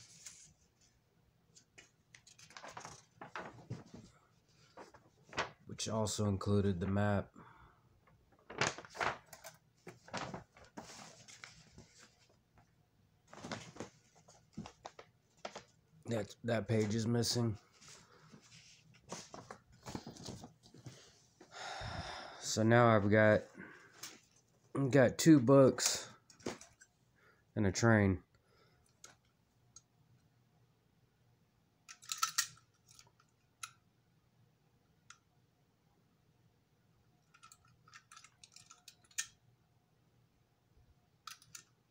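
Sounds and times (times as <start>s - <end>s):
book pages rustling: 1.6s - 5.6s, 8.3s - 12.4s, 13.3s - 15.8s, 17.6s - 21.4s.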